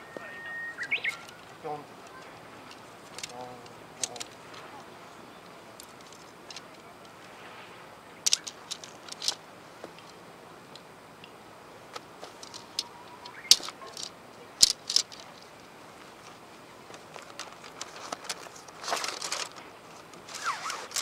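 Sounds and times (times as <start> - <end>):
tent poles clicking together: 0.9 - 4.9, 5.7 - 7.3, 8.2 - 21.0.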